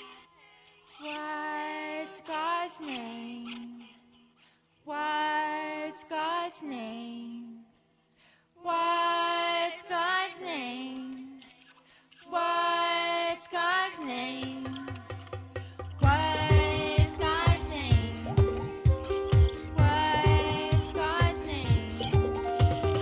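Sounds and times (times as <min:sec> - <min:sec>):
woman singing: 0:01.1 - 0:04.0, 0:04.9 - 0:07.7, 0:08.6 - 0:11.5, 0:12.3 - 0:15.2, 0:16.0 - 0:23.0
low bass tone: 0:16.0 - 0:23.0.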